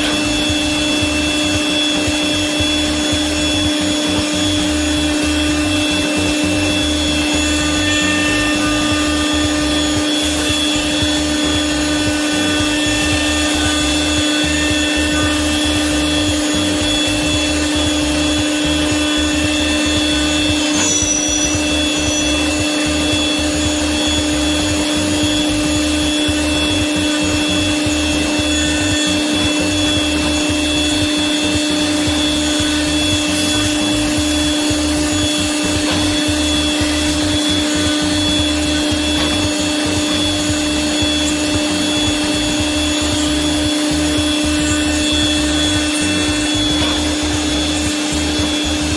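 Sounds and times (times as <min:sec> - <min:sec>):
milling machine cutting metal: 0:00.0 - 0:48.9.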